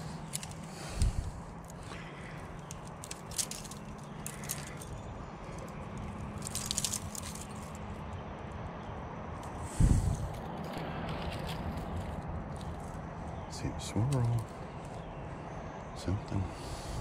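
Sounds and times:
fishing rod clicks and rattles: 0.0s - 7.8s
steady low hum: 0.0s - 17.0s.

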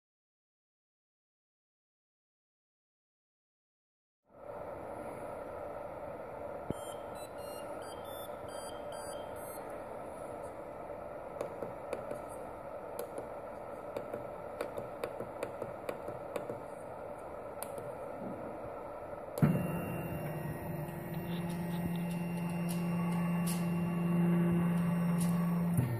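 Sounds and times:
fans humming: 4.4s - 25.9s
buzzer beeping a tune: 6.7s - 9.6s, 19.8s - 25.7s
stepper motors whining: 19.4s - 25.9s.

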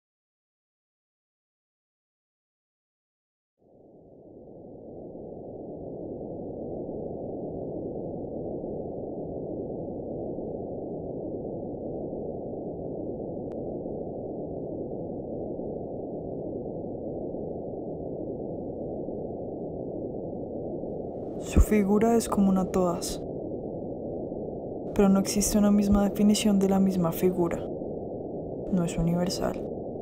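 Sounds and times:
muffled low static noise: 13.7s - 30.0s.

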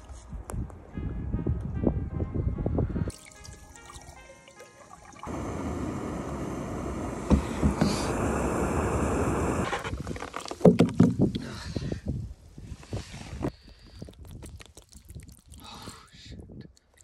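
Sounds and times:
camp stove burner rushing: 5.2s - 10.4s
ice knocking on wooden boards: 9.9s - 11.3s.

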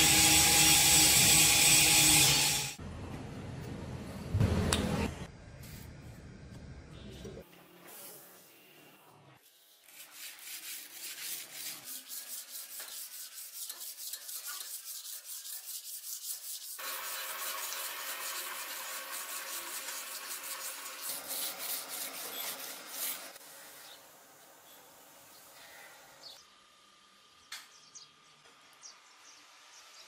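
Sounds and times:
sandpaper rubbing metal blade: 0.0s - 2.8s, 9.4s - 24.0s.

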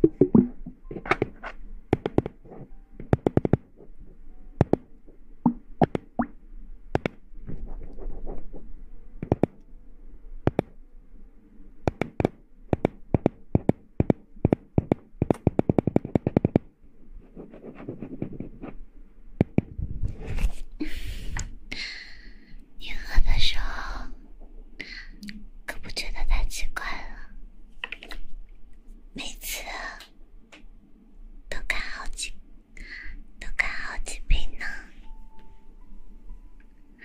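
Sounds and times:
sharp clicks and plops: 0.0s - 1.3s, 5.4s - 6.3s, 11.9s - 16.7s.

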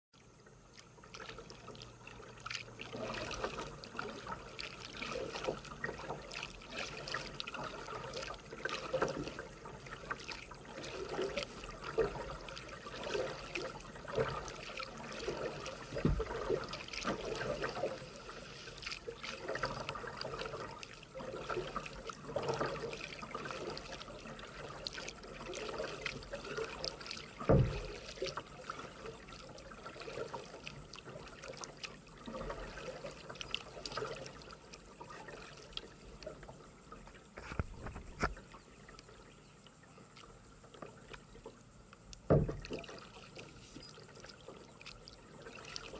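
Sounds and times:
kayak paddle dipping in water: 0.2s - 45.9s
water dripping off paddle: 0.7s - 45.9s
dull knocks: 27.5s - 27.9s, 42.3s - 42.7s.

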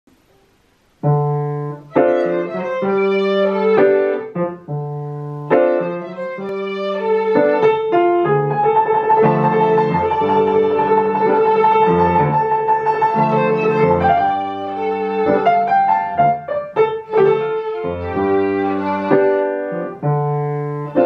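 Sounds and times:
grand piano chords: 0.1s - 21.0s
violin long bowed notes: 1.9s - 4.3s, 5.8s - 16.4s, 17.0s - 19.9s.

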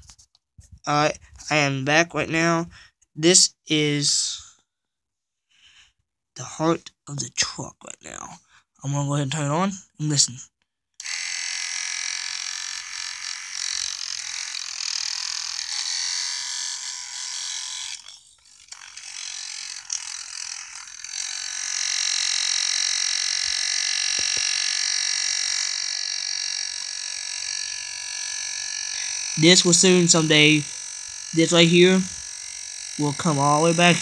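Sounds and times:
toy motor whirring whine: 11.0s - 34.0s.

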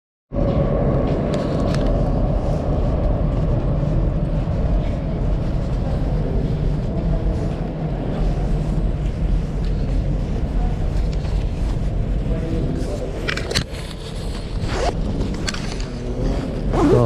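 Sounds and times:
low rumble of metro station: 0.3s - 17.0s.

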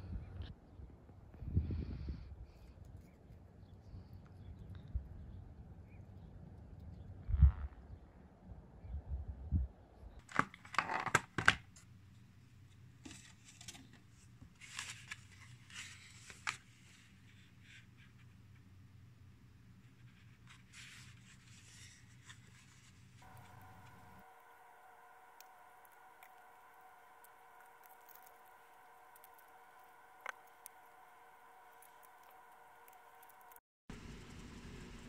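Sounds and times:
plastic packaging crinkling: 10.2s - 11.7s.

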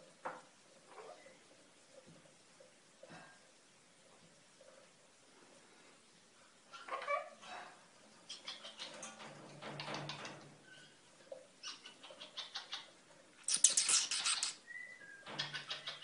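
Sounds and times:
parrots clicking and scratching: 8.3s - 14.6s, 15.3s - 16.0s
faint bird peeps: 13.5s - 16.0s.

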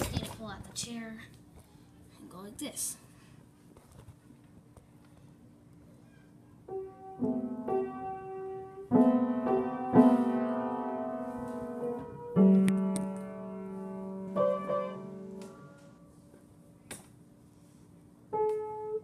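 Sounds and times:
piano notes played unskilfully: 6.7s - 16.2s, 18.3s - 19.0s.

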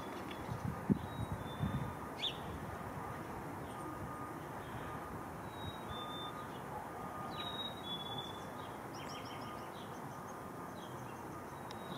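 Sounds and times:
chickadee whistled song: 5.4s - 6.5s, 7.2s - 9.8s.

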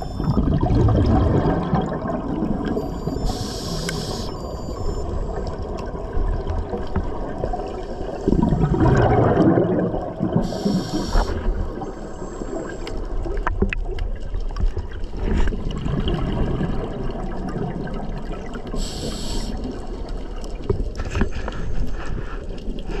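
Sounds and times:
exhaled bubbles gurgling: 0.0s - 23.0s
hissing regulator inhales: 3.2s - 4.5s, 10.4s - 11.6s, 18.8s - 19.7s.

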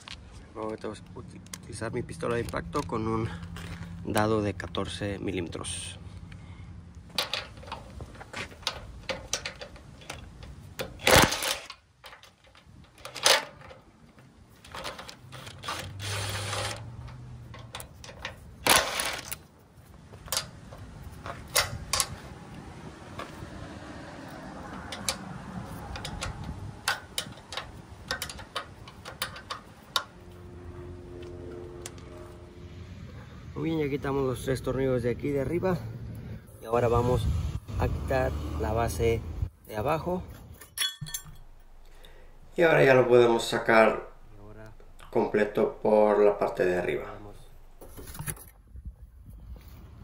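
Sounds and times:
metal clicks and knocks: 7.1s - 15.6s, 16.7s - 19.4s, 20.1s - 22.2s, 24.6s - 30.2s.

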